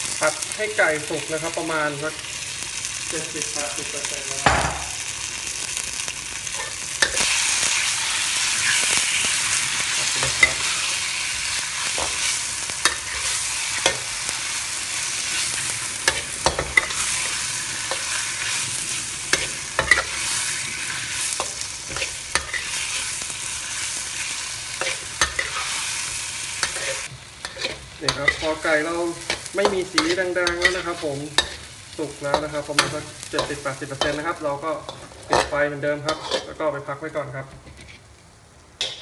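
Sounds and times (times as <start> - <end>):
chicken sizzling in hot oil: 0.0 - 39.0
metal spatula scraping a wok: 8.6 - 14.4, 15.0 - 36.6.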